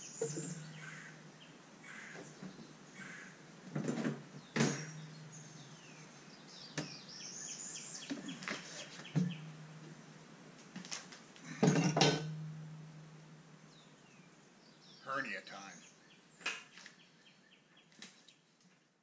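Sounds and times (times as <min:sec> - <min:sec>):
bird chirping: 0:00.0 - 0:03.4, 0:04.3 - 0:10.2, 0:12.3 - 0:18.4
engine cowling knocks and clunks: 0:03.7 - 0:05.9, 0:09.0 - 0:10.0.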